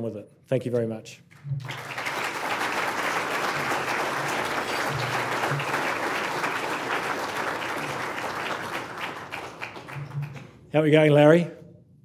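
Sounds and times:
audience applauding: 1.6s - 10.6s.

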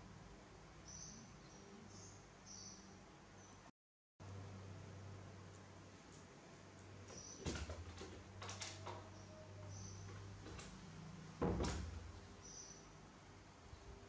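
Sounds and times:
low steady hum: 0.0s - 14.0s
dull thumps: 11.4s - 12.2s.

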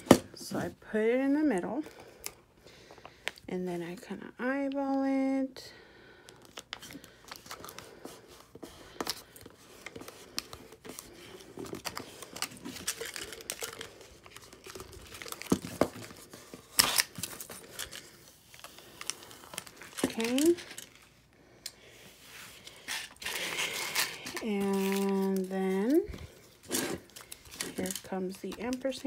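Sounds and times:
plastic tape crinkling: 9.0s - 21.1s, 22.6s - 29.0s.

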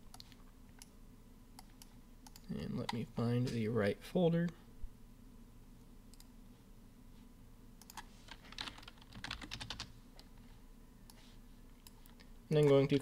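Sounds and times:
typing on computer keyboard: 7.8s - 9.9s.

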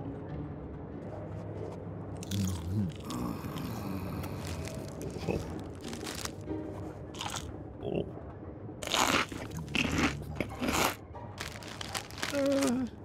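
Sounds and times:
loud crunching: 2.2s - 6.4s, 7.2s - 7.5s, 8.8s - 12.9s
person humming: 2.6s - 5.6s, 12.2s - 13.0s.

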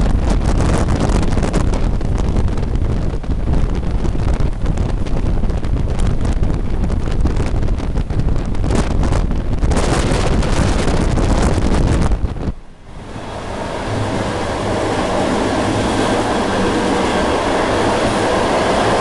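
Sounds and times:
wind buffeting microphone: 0.0s - 19.0s
train wheels on rails: 13.0s - 19.0s.

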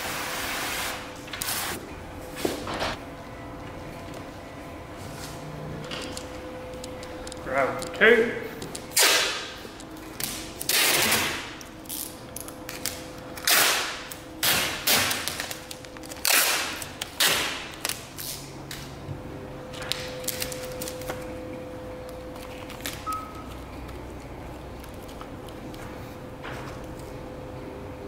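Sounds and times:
tape strips pressed down: 8.9s - 9.4s, 10.2s - 18.9s
masking tape ripped off roll: 9.0s - 9.4s, 10.6s - 11.5s, 13.4s - 15.6s, 16.2s - 18.5s
faint steady hum: 15.5s - 28.0s.

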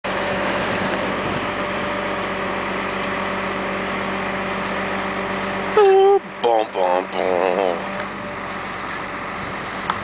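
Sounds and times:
truck crane engine running: 0.0s - 10.0s.

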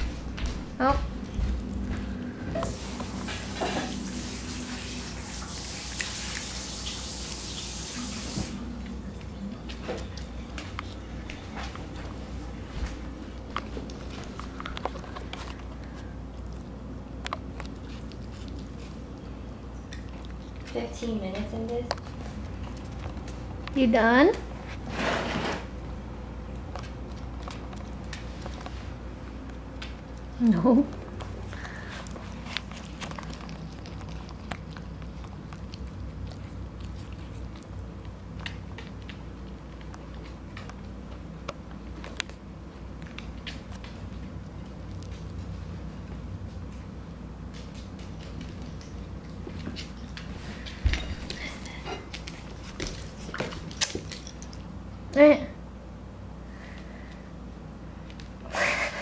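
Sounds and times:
low hum: 0.0s - 5.4s
puppy chewing and licking: 0.0s - 24.9s, 25.6s - 55.0s.

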